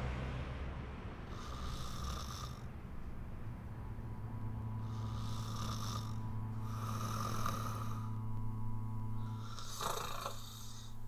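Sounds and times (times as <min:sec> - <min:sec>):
steady low hum: 0:00.0 - 0:11.0
man snoring: 0:01.3 - 0:02.7, 0:04.8 - 0:08.2, 0:09.2 - 0:11.0.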